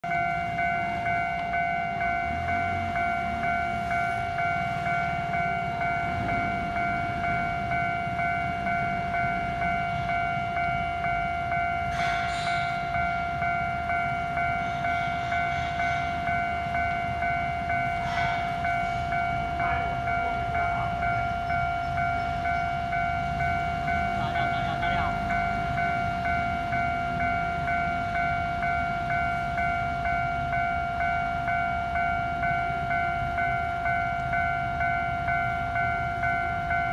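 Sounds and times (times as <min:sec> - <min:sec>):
level crossing warning bell: 0:00.0 - 0:36.9.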